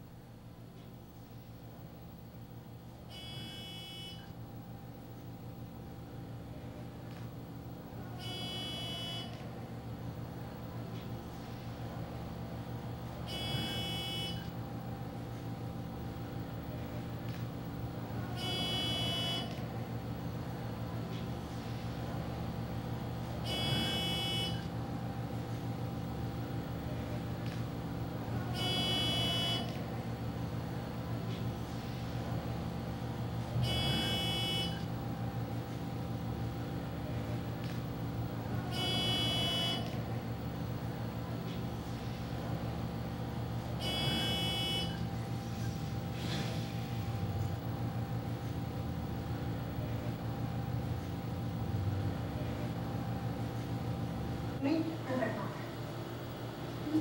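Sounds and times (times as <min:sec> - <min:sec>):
low electrical hum: 0:00.0 - 0:57.0
electronic buzzer: 0:03.1 - 0:04.3, 0:08.2 - 0:09.4, 0:13.3 - 0:14.5, 0:18.4 - 0:19.6, 0:23.4 - 0:24.7, 0:28.6 - 0:29.8, 0:33.6 - 0:34.9, 0:38.7 - 0:39.9, 0:43.8 - 0:45.0.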